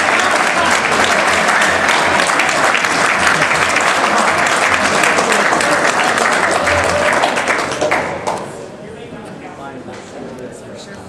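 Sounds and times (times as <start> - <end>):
crowd applauding: 0.0 - 8.5.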